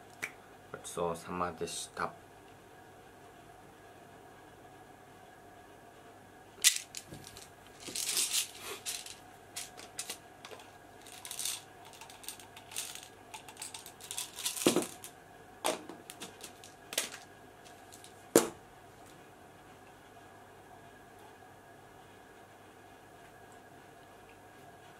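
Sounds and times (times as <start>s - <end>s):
tablets rattling in bottle: 6.6s - 15.1s, 16.0s - 18.2s.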